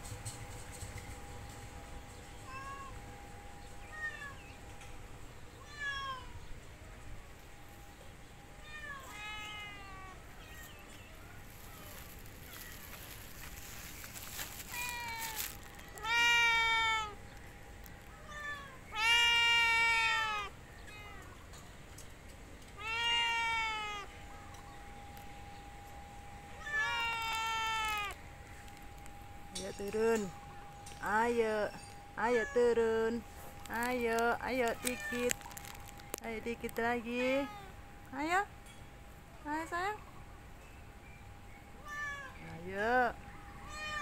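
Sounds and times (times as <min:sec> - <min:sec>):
cat meowing: 0:05.6 - 0:06.4, 0:08.6 - 0:10.7, 0:14.7 - 0:17.2, 0:18.2 - 0:21.3, 0:22.8 - 0:24.1, 0:26.6 - 0:28.2, 0:43.6 - 0:44.0.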